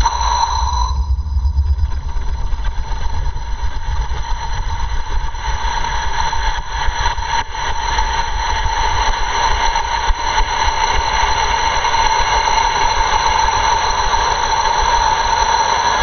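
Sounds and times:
high-pitched tones: 0.0s - 2.4s
rocket motor rumble: 0.0s - 6.7s.

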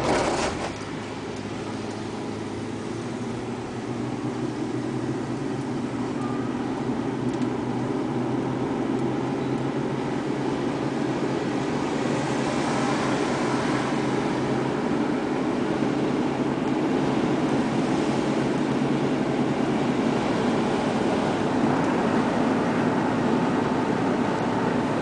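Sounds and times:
car engine hum: 0.0s - 25.0s.

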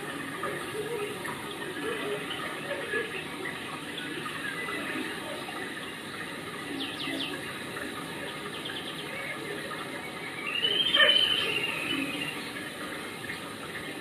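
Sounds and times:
running water: 0.0s - 14.0s
bird chirps: 10.4s - 12.5s.

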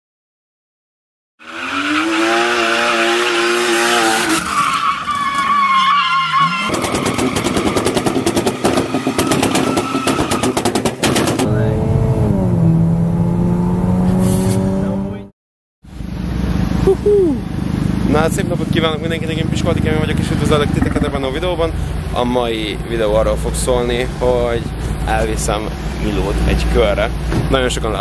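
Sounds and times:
tyre squeal: 1.4s - 10.8s
car engines revving: 1.4s - 15.3s, 15.9s - 28.0s.

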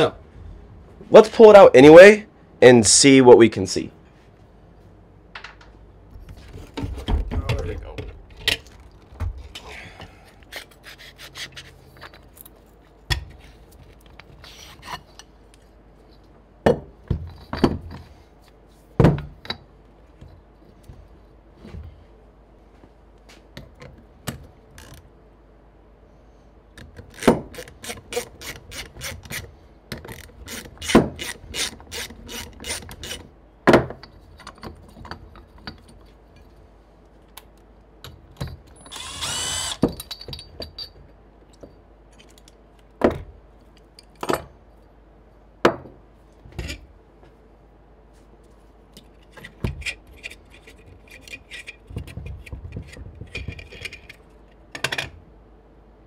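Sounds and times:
tools and metal parts knocking: 29.9s - 36.5s, 38.0s - 42.5s, 49.3s - 55.1s.

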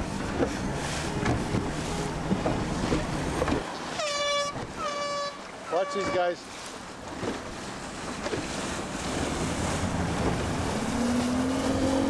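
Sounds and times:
outboard motor hum: 0.0s - 12.0s
water rushing past boat: 0.0s - 12.0s
wind buffeting microphone: 7.0s - 12.0s.

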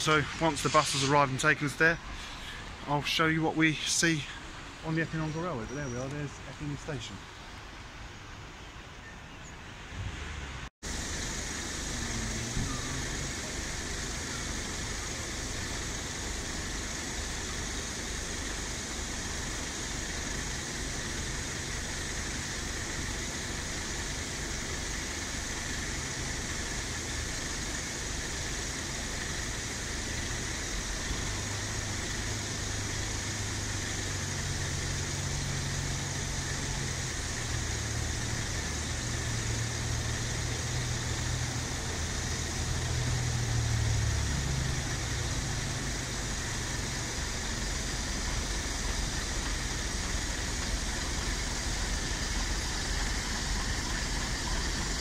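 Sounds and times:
bus diesel engine running: 0.0s - 55.0s
road traffic hiss: 0.0s - 55.0s.

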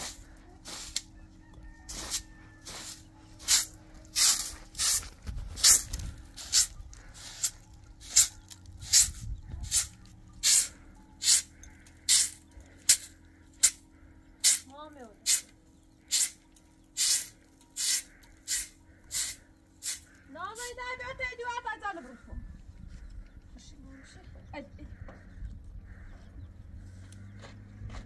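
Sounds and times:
broom sweeping carpet: 0.0s - 1.0s, 1.9s - 5.0s.

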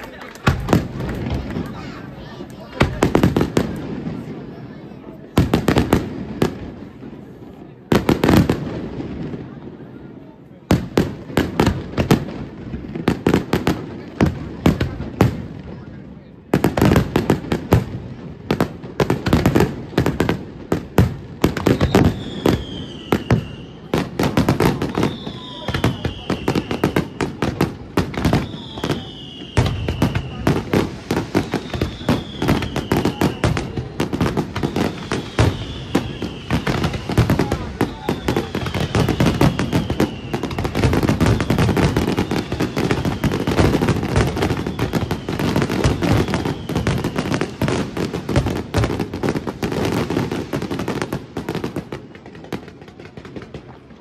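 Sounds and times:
fireworks bangs and crackling: 0.0s - 54.0s
firework whistle falling in pitch: 21.7s - 23.9s, 24.8s - 27.4s, 28.2s - 30.7s, 31.3s - 33.8s, 34.5s - 43.6s.

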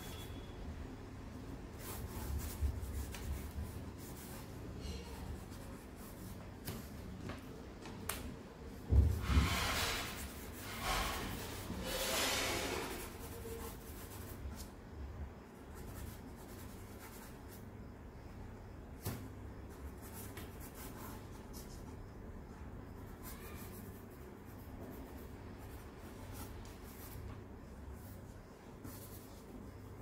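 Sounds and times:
charcoal scratching on paper: 1.7s - 7.0s, 8.9s - 14.8s, 15.6s - 17.6s, 19.0s - 22.1s, 22.9s - 30.0s.

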